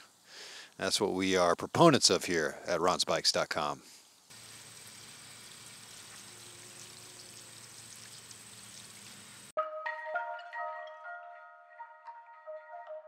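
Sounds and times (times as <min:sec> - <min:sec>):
hose water spraying: 0:04.3 - 0:09.5
music with mallet notes: 0:09.6 - 0:13.0.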